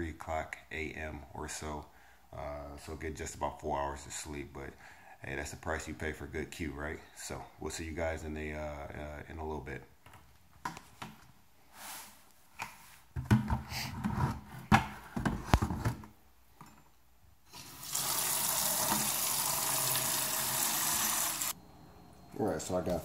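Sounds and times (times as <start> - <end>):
faucet water filling plastic pail: 17.5 - 21.6.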